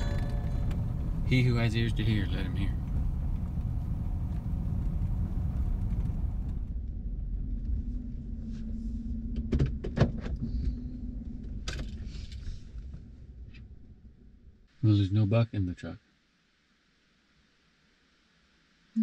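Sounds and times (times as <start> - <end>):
road and engine rumble: 0.0 - 13.9.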